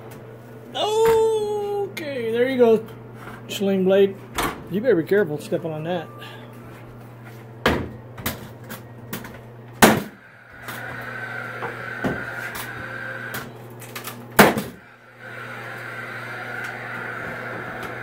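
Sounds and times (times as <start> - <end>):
nail gun shots: 9.8 - 10.2, 14.4 - 14.8
nail gun whirring: 9.8 - 13.5.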